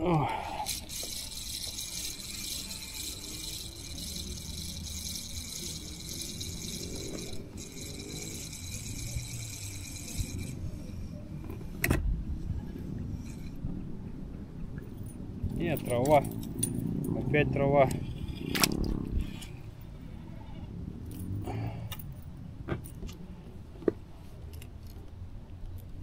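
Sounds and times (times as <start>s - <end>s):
fishing reel whirring: 0.2s - 11.4s, 12.7s - 13.6s.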